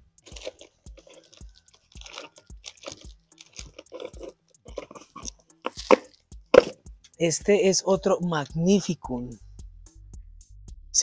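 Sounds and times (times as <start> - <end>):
soft low pulsing beat: 0.0 - 11.0
wrapping crinkling and rustling: 0.2 - 6.8.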